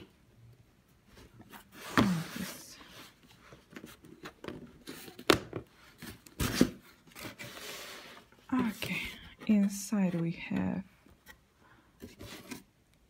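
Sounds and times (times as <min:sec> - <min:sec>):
cardboard box scraping and rustling: 0:01.4 - 0:05.3, 0:05.9 - 0:10.8.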